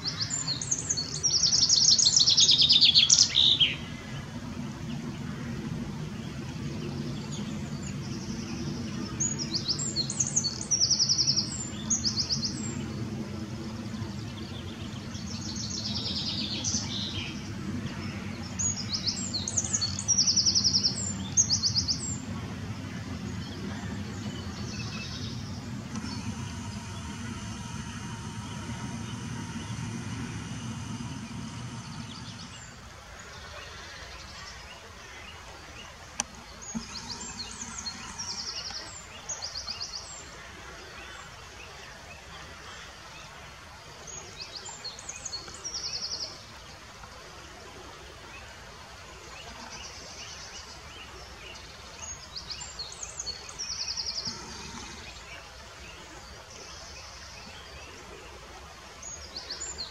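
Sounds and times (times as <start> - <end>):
low hum: 0.0 - 40.8, 53.6 - 56.9
river water running over rapids: 14.0 - 59.9.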